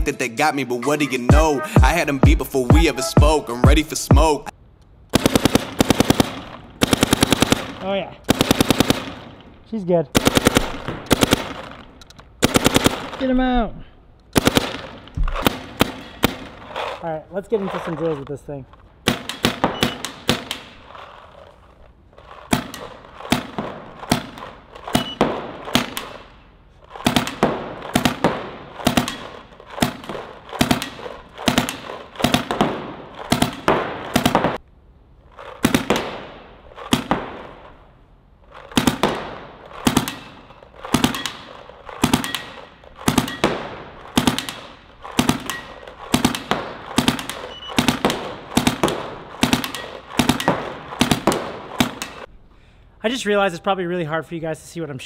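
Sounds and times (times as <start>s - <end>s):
paintball marker firing: 14.3s - 16.9s, 19.0s - 21.5s, 22.3s - 26.3s, 26.9s - 34.6s, 35.4s - 37.8s, 38.5s - 52.3s.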